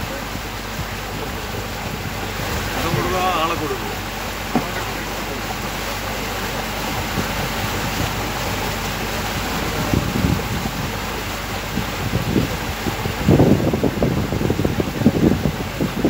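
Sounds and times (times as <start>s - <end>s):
boat engine running: 0.0s - 16.0s
water washing past hull: 0.0s - 16.0s
wind on microphone: 0.0s - 16.0s
low thumps: 0.7s - 14.7s.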